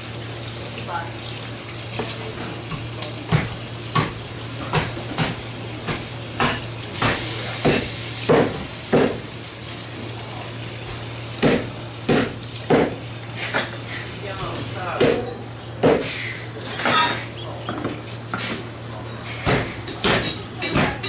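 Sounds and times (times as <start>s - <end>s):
knife chopping through fish: 3.3s - 9.2s, 11.4s - 13.0s, 15.0s - 16.2s, 19.4s - 21.0s.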